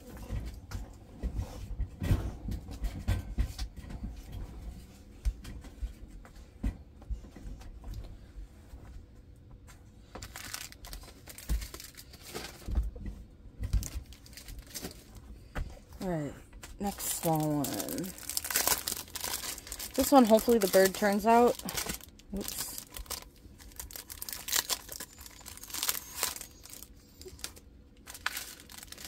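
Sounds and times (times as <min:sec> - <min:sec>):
plastic bags rustling: 0:10.1 - 0:13.0, 0:13.6 - 0:15.4, 0:16.8 - 0:29.0.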